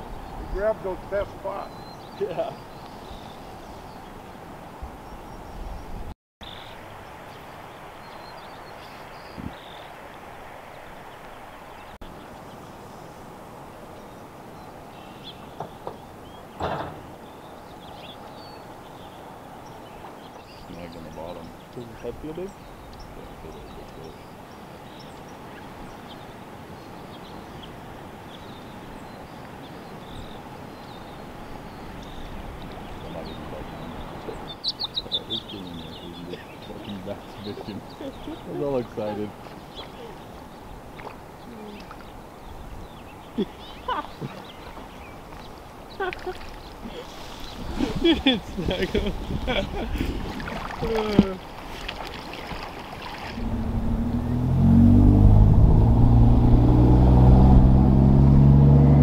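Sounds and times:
wind rumbling on microphone: 2.7s - 6.1s, 6.8s - 13.4s, 39.3s - 59.0s
wind buffeting microphone: 9.2s - 9.8s, 46.7s - 51.7s, 52.3s - 59.0s
faint bird chirps: 17.2s - 47.7s
river water rushing: 49.7s - 59.0s.

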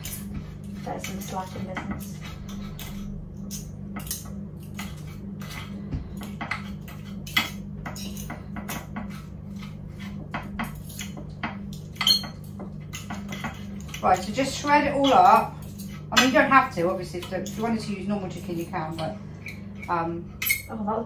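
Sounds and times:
forks clinking and scraping on plate: 0.0s - 14.4s
steady low hum: 0.0s - 21.0s.

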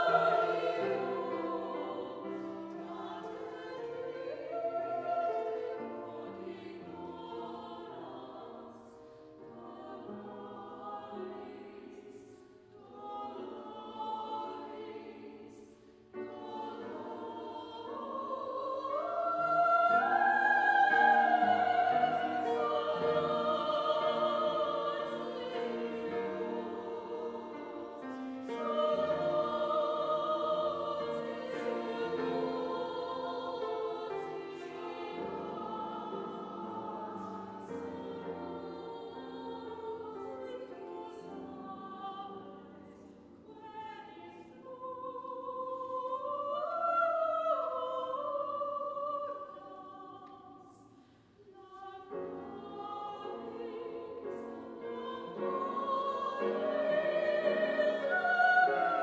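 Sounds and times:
mixed choir singing: 0.0s - 59.0s.

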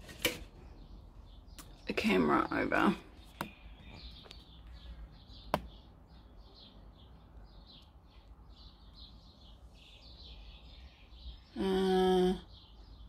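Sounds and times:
small bird chirping: 0.6s - 13.0s.

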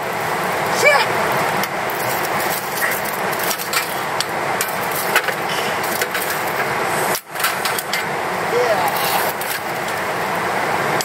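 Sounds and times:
steady hiss: 0.0s - 11.0s
wood fire crackling: 0.0s - 11.0s.

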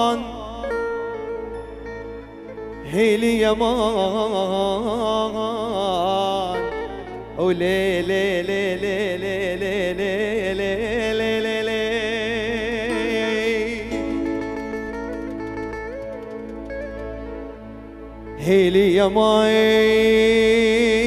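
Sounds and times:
man singing with vibrato: 0.0s - 2.0s, 2.8s - 15.0s, 18.4s - 21.0s
sustained instrumental backing: 0.0s - 21.0s.

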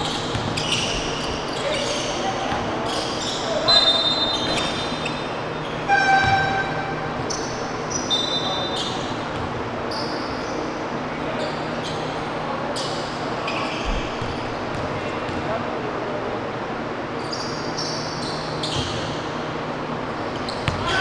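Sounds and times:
basketball bouncing: 0.0s - 0.8s, 5.9s - 7.4s, 14.2s - 15.4s, 20.6s - 20.9s
sneakers squeaking on wooden floor: 0.0s - 10.7s, 17.2s - 19.3s, 20.3s - 21.0s
hubbub in hall: 0.0s - 21.0s.

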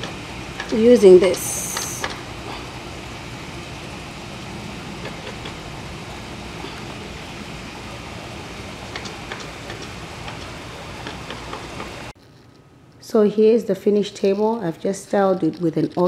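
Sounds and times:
even hiss: 0.0s - 12.2s.

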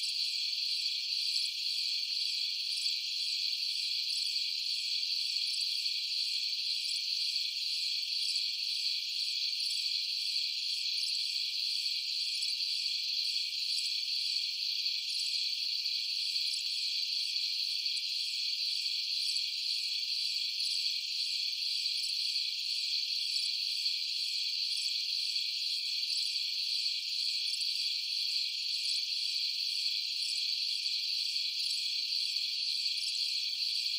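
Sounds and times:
insects chorus: 0.0s - 33.9s.

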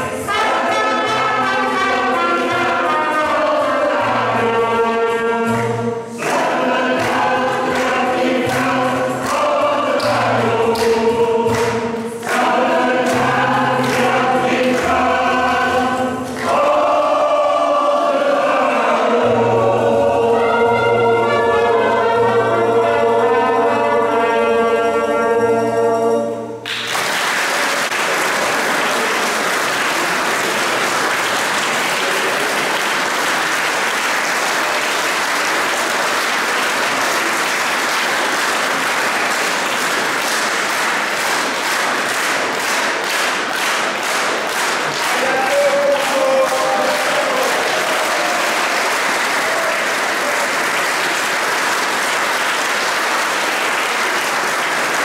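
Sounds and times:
rhythmic clapping in unison: 0.0s - 20.6s, 26.6s - 55.0s
choir with trumpet: 0.0s - 26.6s, 45.0s - 51.0s
audience applause: 6.2s - 15.5s, 26.6s - 55.0s.

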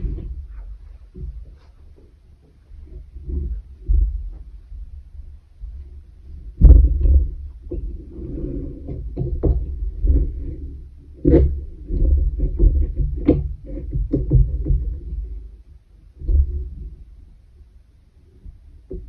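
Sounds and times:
needle knocking and rubbing through yarn: 0.0s - 15.4s, 16.2s - 17.1s, 18.4s - 19.0s
low thumps on table: 6.6s - 8.1s, 8.8s - 10.4s.

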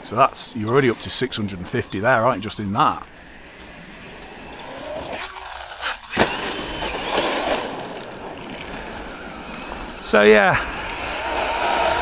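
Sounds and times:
tyres scrabbling on gravel: 0.0s - 3.4s, 4.0s - 12.0s
electric motor whining: 3.1s - 12.0s.

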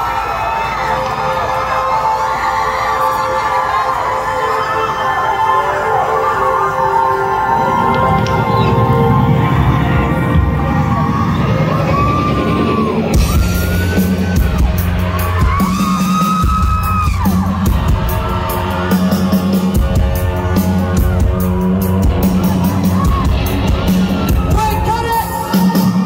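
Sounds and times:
loud live rock music: 7.4s - 26.0s.

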